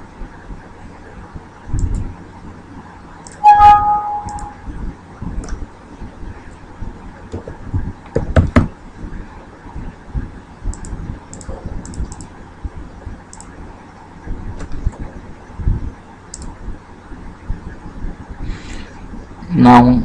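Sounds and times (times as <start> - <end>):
keyboard keystrokes: 4.2 - 4.5
mouse clicks: 4.2 - 4.5
loud knocks: 7.4 - 8.7.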